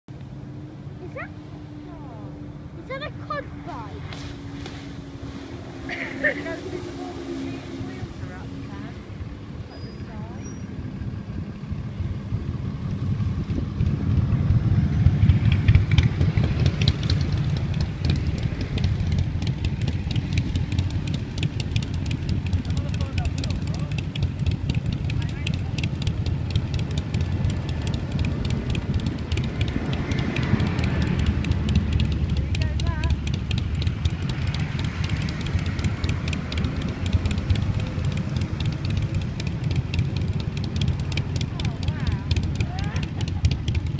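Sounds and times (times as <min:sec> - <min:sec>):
quad bike engine rumbling: 0:00.1 - 0:43.9
rapid crackling clicks: 0:15.3 - 0:43.9.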